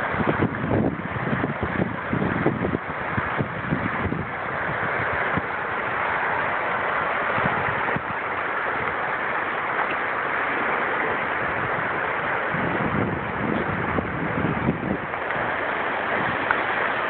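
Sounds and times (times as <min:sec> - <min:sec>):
wind bumping microphone: 0:00.0 - 0:09.0, 0:11.0 - 0:17.0
floodwater rushing over wall: 0:00.0 - 0:17.0.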